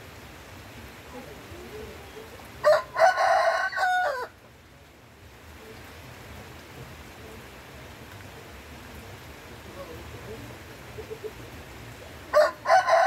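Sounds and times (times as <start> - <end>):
steady rain: 0.0 - 13.0
rooster crowing: 2.6 - 4.4, 12.3 - 13.0.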